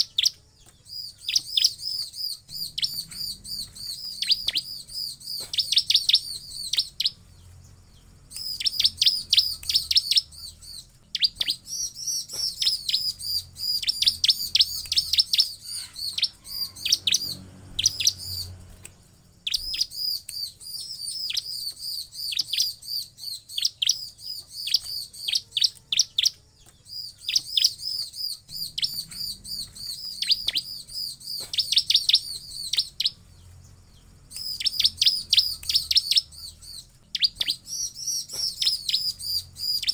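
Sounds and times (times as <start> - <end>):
bird singing sharp high chips: 0.0 - 39.9.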